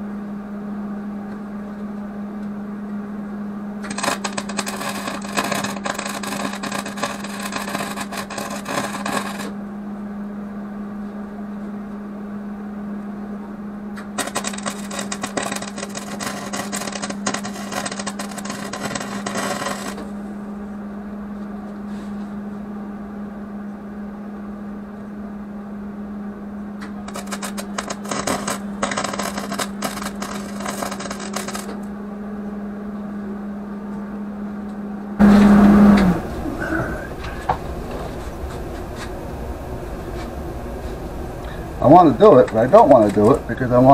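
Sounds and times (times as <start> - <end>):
low hum: 0.0 - 43.9
arc welding crackling: 3.8 - 9.6, 14.0 - 20.1, 26.9 - 31.9, 35.2 - 43.9.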